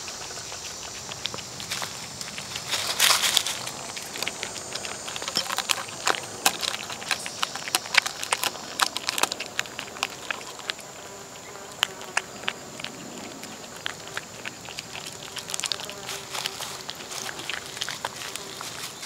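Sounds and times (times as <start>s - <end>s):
cat chewing and lapping: 0.0s - 19.0s.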